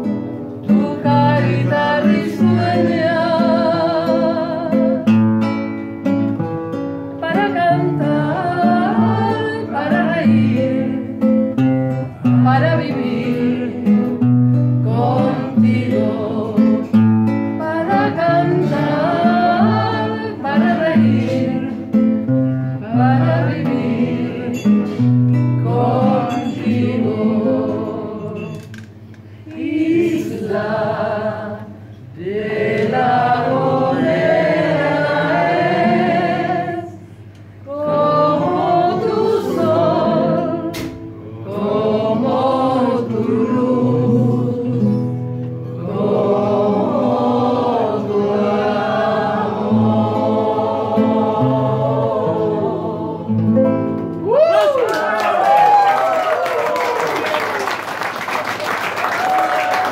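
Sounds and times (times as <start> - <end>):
classical guitar strumming: 0.0 - 29.4, 37.8 - 54.3
woman and man singing: 0.7 - 5.1, 7.2 - 11.4, 12.0 - 14.2, 14.8 - 22.1, 22.8 - 28.7, 37.7 - 45.2.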